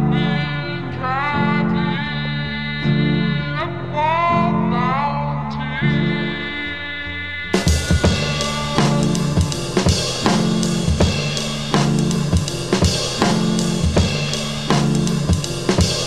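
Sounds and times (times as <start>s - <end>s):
bass line: 0.0s - 16.0s
drum kit beat: 7.6s - 16.0s.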